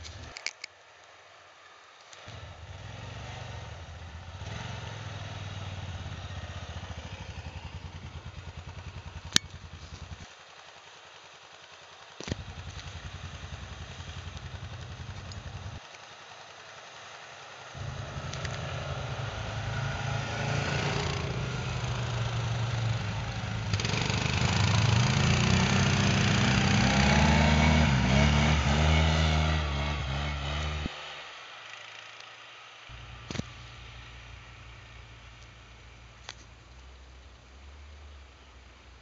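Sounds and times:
quad bike engines revving: 0:02.2 - 0:10.2, 0:12.2 - 0:15.8, 0:17.8 - 0:31.2.

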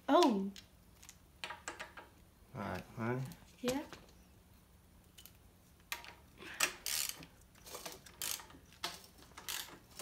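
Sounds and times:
ratchet wrench clicking: 0:06.8 - 0:07.2, 0:08.1 - 0:08.6, 0:09.4 - 0:09.8.

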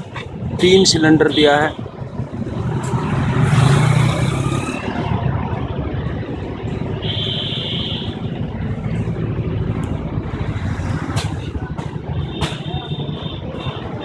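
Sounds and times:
diesel tractor engine pulsing: 0:00.0 - 0:14.0.

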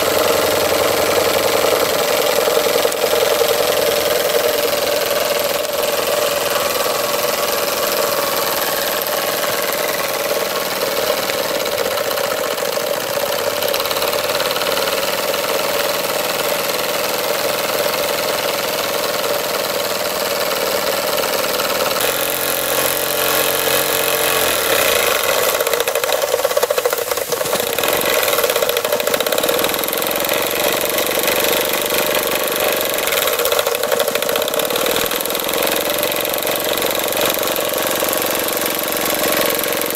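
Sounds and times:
model steam engine running: 0:00.0 - 0:39.9
steam hiss: 0:00.0 - 0:39.9
steady buzzing tone: 0:22.0 - 0:39.9.

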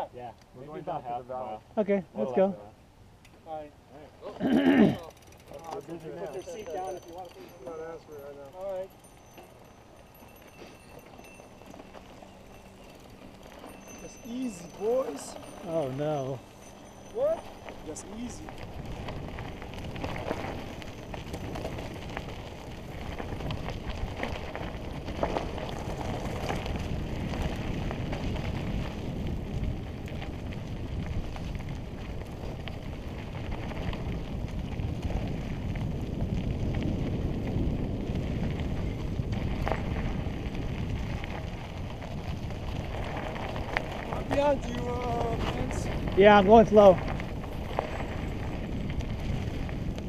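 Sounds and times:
tyres crunching over dirt and stones: 0:04.8 - 0:50.0
wind rushing over microphone: 0:17.8 - 0:50.0
bike knocking on rocks: 0:42.6 - 0:50.0.

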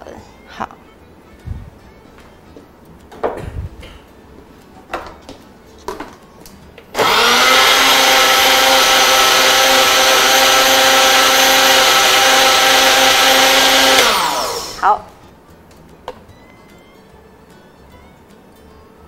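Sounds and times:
blender motor running: 0:07.0 - 0:14.9.

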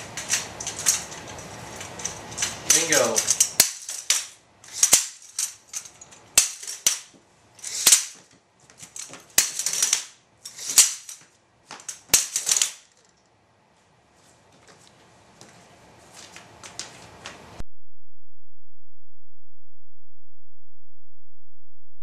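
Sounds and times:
metal light stands clacking: 0:00.0 - 0:13.2.

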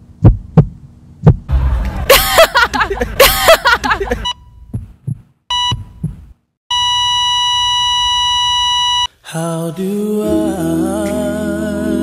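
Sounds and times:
low heartbeat thumps: 0:00.1 - 0:06.4
short beep: 0:05.5 - 0:06.0, 0:06.7 - 0:09.1
high-pitched flatline tone: 0:06.7 - 0:09.1.

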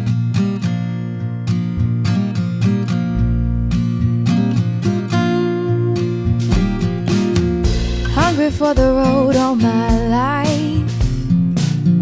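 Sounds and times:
steady musical accompaniment: 0:05.3 - 0:10.0
melody sung with wavering pitch: 0:08.0 - 0:10.9.

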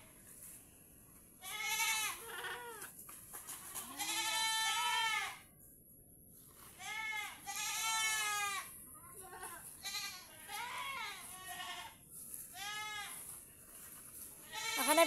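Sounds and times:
goats bleating: 0:01.4 - 0:02.8, 0:03.8 - 0:05.4, 0:06.8 - 0:12.0, 0:14.5 - 0:15.0.

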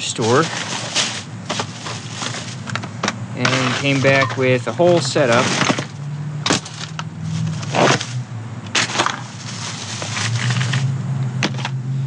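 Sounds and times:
plastic packaging crinkling: 0:00.0 - 0:08.2, 0:08.8 - 0:10.9.

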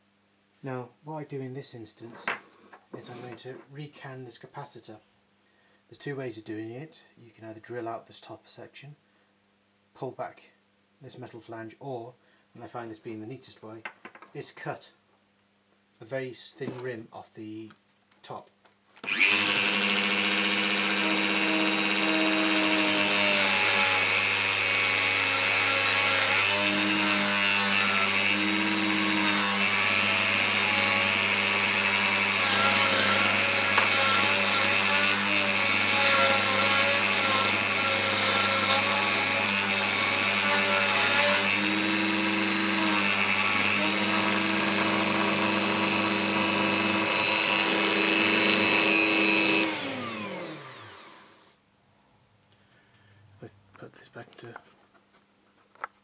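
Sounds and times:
rotary tool cutting metal: 0:19.0 - 0:51.0.

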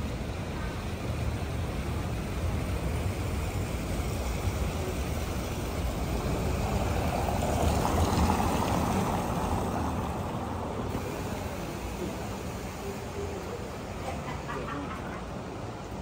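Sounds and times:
steady street noise: 0:00.0 - 0:16.0.

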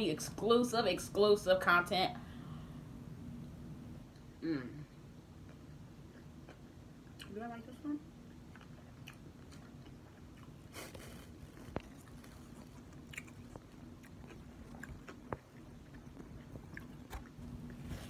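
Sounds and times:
closed-mouth chewing: 0:08.2 - 0:17.8.

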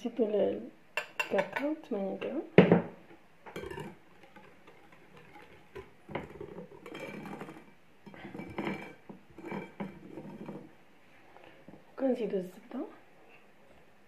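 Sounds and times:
whisk scraping glass bowl: 0:03.6 - 0:10.7.

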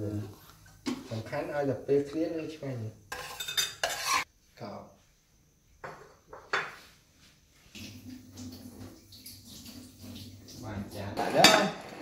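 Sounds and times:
plates and spoon clinking: 0:03.1 - 0:04.3, 0:11.2 - 0:12.0.

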